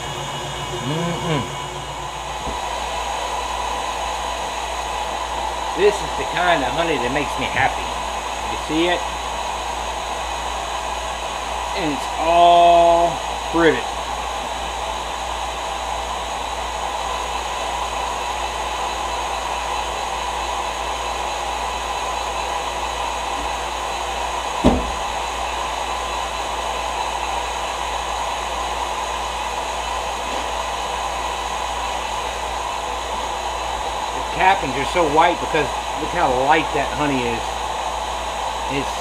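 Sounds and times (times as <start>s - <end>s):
honey extractor motor whirring: 0.0s - 39.0s
short knock: 24.6s - 25.0s.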